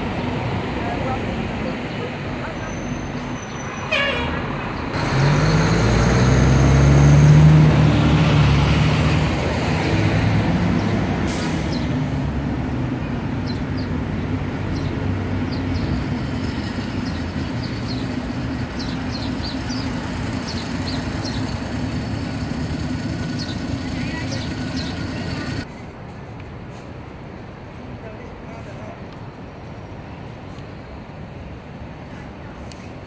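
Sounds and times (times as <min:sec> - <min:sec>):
steady traffic noise: 0:00.0 - 0:33.0
heavy vehicle engine passing: 0:04.3 - 0:25.7.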